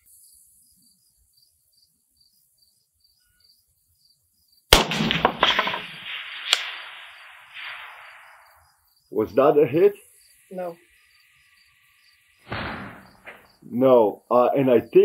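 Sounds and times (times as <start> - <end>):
crickets chirping: 0.0 - 15.0
rifle shot with echo: 4.7 - 8.7, 12.5 - 13.5
sharp crack: 4.7 - 9.4, 12.4 - 13.7.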